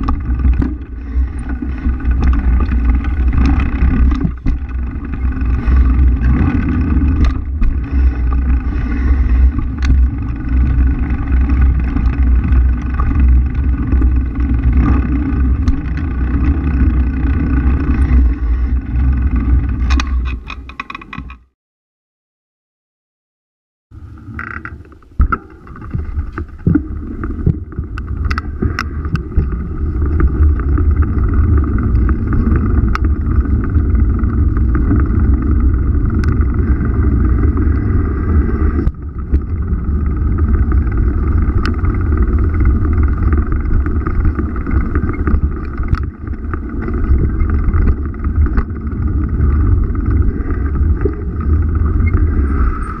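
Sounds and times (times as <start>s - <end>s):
knocks and clicks: 0.0s - 7.8s, 19.4s - 21.5s
wind: 0.0s - 21.5s, 23.9s - 53.0s
motorbike riding rumble: 0.0s - 21.6s, 23.9s - 53.0s
road noise: 24.0s - 53.0s.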